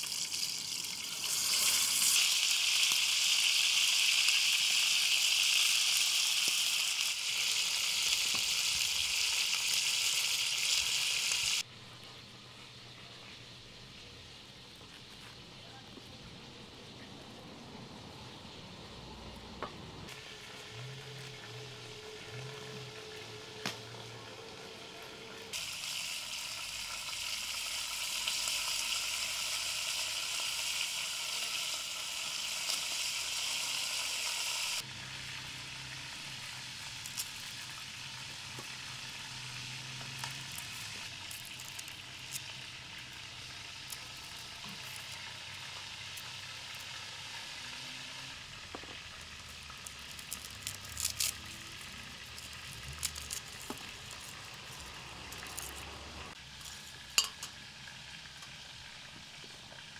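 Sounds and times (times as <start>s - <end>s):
chicken sizzling in oil: 0.0s - 11.7s, 20.1s - 59.9s.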